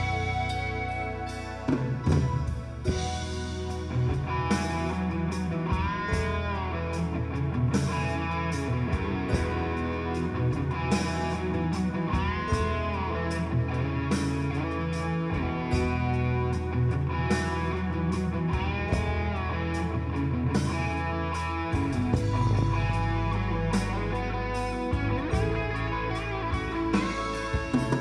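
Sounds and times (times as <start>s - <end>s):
drum and cymbal hits: 0.0s - 6.6s, 7.8s - 13.0s, 21.7s - 28.0s
guitar-led rock music: 0.0s - 28.0s.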